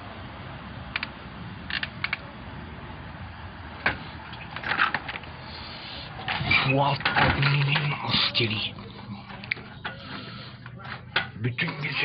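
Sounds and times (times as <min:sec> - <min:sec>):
phone handling clicks and rustles: 0:03.9 - 0:05.3, 0:06.2 - 0:08.0, 0:09.2 - 0:11.9.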